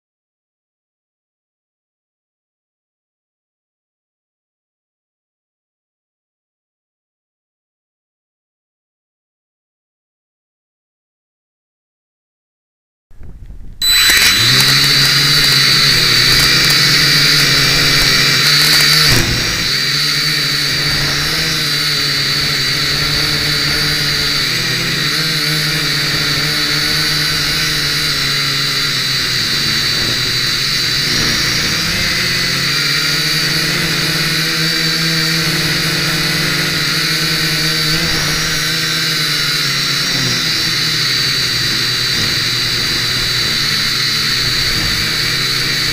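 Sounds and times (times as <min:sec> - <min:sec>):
quadcopter motors whining: 0:13.8 - 0:45.9.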